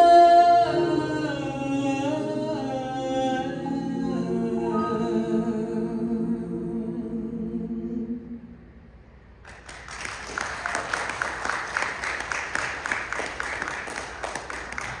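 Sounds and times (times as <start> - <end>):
audience applauding: 9.4 - 15.0.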